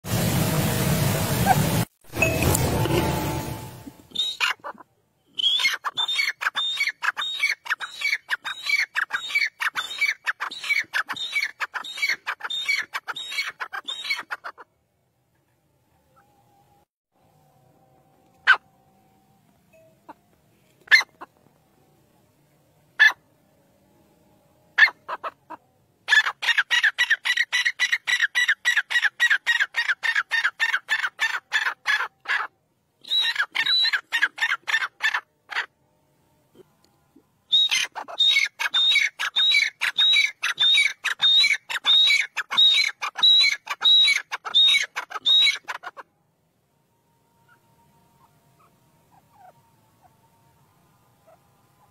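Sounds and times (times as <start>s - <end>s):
francolin calling: 37.5s - 45.7s.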